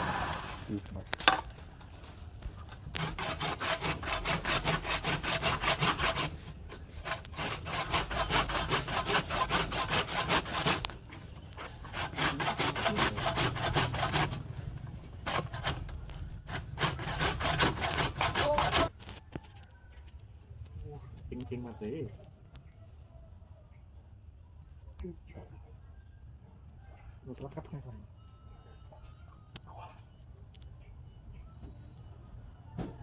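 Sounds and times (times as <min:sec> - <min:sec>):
hand saw cutting wood: 0:02.9 - 0:10.9, 0:11.6 - 0:14.5, 0:15.2 - 0:18.9.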